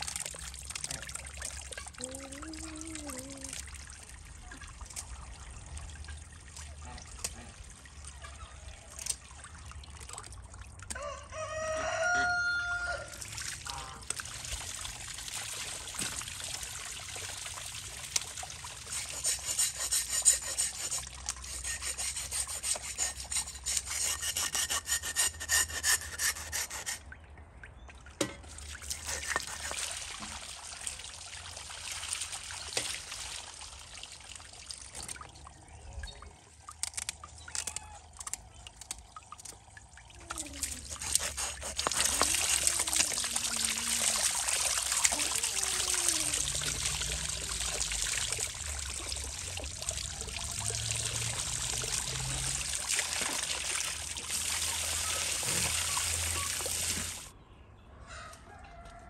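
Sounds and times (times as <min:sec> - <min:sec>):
water trickling: 0:00.0 - 0:57.3
rooster crowing: 0:10.9 - 0:13.2, 0:58.0 - 0:59.0
scraping strokes: 0:18.8 - 0:27.0, 0:28.9 - 0:29.8, 0:40.7 - 0:42.8.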